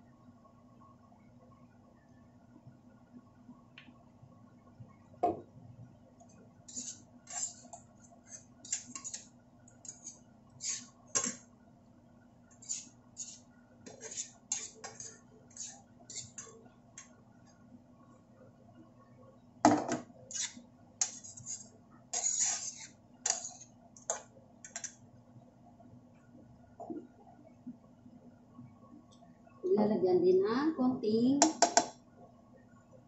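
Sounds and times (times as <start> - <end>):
utensils scraping frying pan: 6.7 - 11.4, 12.6 - 16.6, 20.3 - 23.7.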